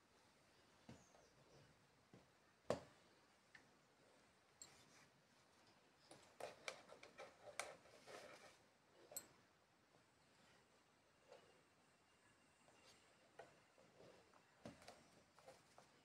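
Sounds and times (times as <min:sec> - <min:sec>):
soft rustling: 0:03.9 - 0:11.8, 0:12.6 - 0:16.0.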